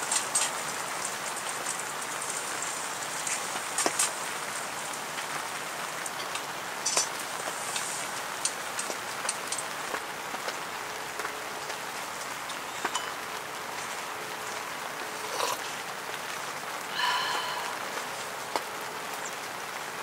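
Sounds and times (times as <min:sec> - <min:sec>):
rain on tent fabric: 0:00.0 - 0:20.0.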